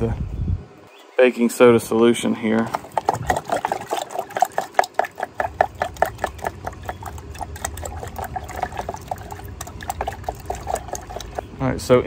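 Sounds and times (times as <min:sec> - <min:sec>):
liquid splashing in glass jar: 0:02.7 - 0:11.5.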